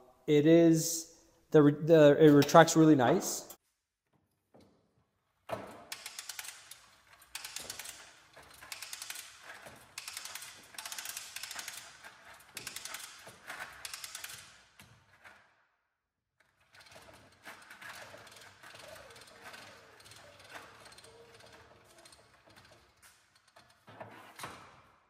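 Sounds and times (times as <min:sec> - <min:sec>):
hose reel ratcheting clicks: 0:05.9 - 0:14.6, 0:16.8 - 0:23.8.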